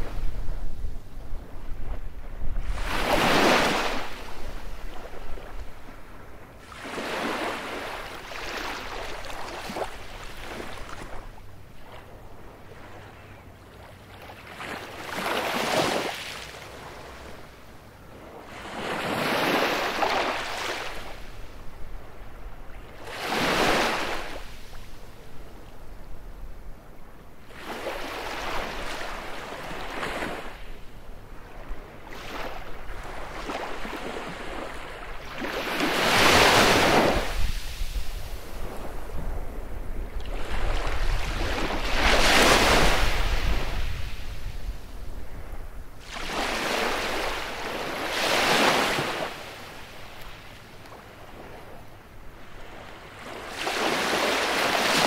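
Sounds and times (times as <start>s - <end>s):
waves breaking on beach: 1.7s - 6.0s, 6.6s - 12.0s, 14.1s - 17.4s, 18.4s - 21.4s, 22.9s - 24.8s, 31.6s - 45.3s, 46.0s - 55.0s.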